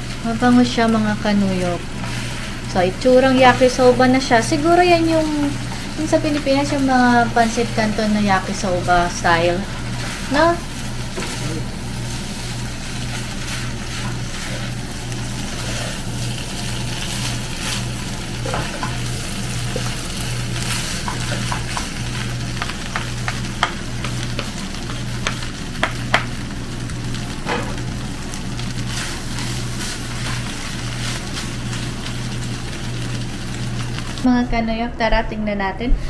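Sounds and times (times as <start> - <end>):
noodles sizzling in a wok: 0.0 - 34.3
wooden spoons knocking a pan: 21.0 - 22.0, 22.6 - 26.3.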